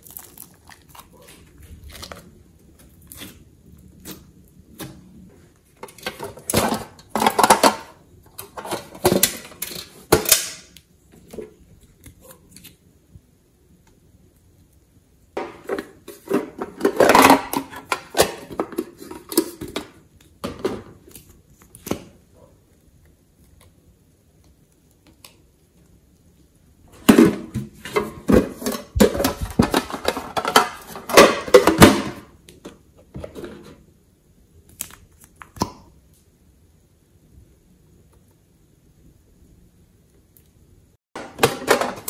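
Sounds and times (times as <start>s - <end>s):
slime clicking and crackling: 0.0s - 3.4s.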